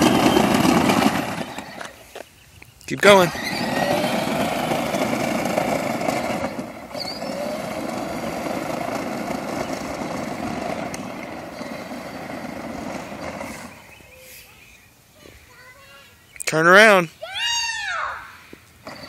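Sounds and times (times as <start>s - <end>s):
electric toy car motors running: 0.0s - 2.3s, 2.9s - 14.2s
wheels rolling on asphalt: 0.0s - 19.0s.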